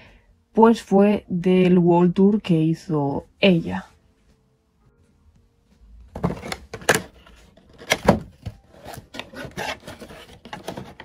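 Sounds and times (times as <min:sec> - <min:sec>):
cardboard scraping: 0:06.1 - 0:11.0.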